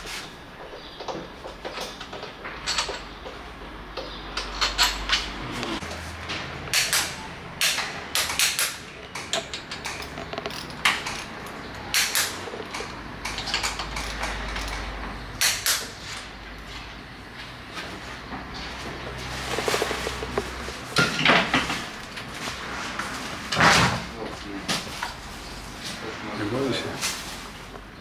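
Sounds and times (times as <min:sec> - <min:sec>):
hand tool clicking and knocking: 0:06.7 - 0:14.8, 0:15.4 - 0:15.9.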